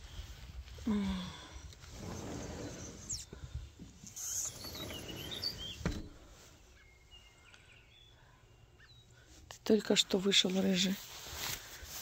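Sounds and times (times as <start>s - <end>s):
low rustle: 0.0s - 6.8s, 10.4s - 12.0s
songbirds chirping: 0.8s - 11.0s.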